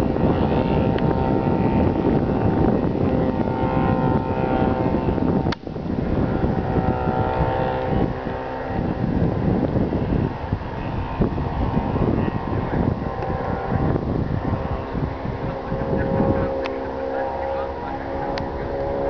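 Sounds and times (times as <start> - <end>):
propeller aircraft engine droning: 0.0 - 19.0
wind rumble on microphone: 0.0 - 19.0.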